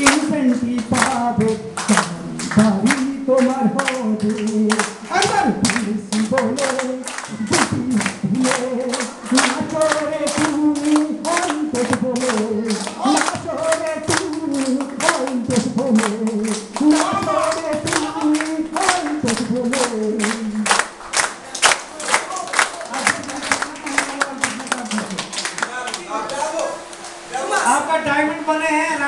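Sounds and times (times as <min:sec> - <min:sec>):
man singing through microphone: 0:00.0 - 0:20.8
people clapping along: 0:00.0 - 0:27.8.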